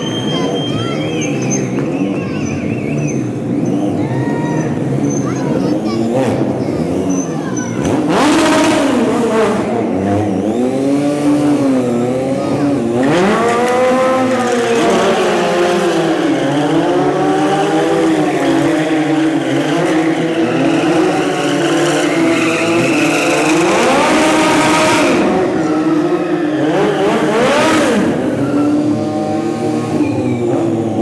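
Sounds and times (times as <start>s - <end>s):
tyre squeal: 0.0s - 5.4s, 7.0s - 7.9s, 14.3s - 31.0s
motorcycle engines revving: 0.0s - 31.0s.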